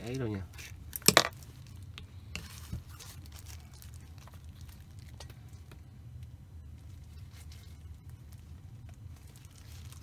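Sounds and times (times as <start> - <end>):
paper towel crinkling: 2.4 - 5.2, 6.7 - 10.0.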